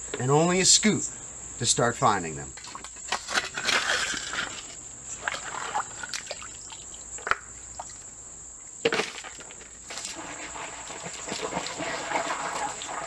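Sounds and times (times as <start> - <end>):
stones clattering: 2.6 - 4.8, 8.8 - 12.9
water sloshing: 2.6 - 8.1, 8.8 - 13.0
shovel digging wet gravel: 2.7 - 6.3, 8.8 - 13.0.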